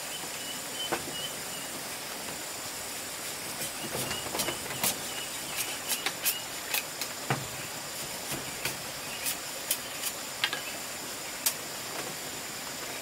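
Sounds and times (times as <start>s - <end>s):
steady high hiss: 0.0s - 13.0s
knife clicking on bamboo: 4.8s - 7.2s.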